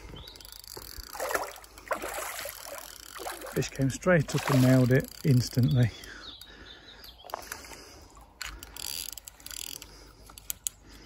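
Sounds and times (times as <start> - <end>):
fishing reel clicking: 2.5 - 3.6, 4.6 - 5.8, 8.4 - 10.9.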